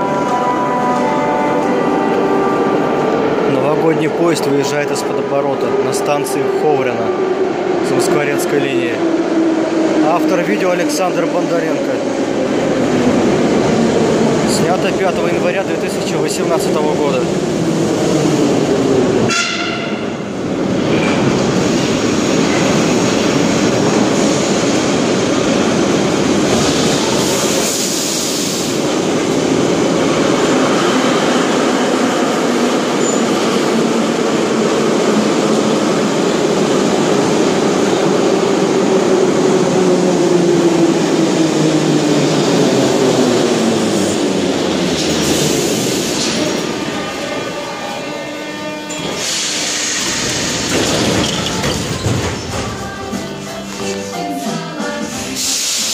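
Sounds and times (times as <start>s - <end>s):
falling whine of slowing train: 0.0s - 14.5s, 15.3s - 55.9s
metro train wheel and running noise: 0.0s - 55.9s
short bursts of hiss: 55.4s - 55.9s.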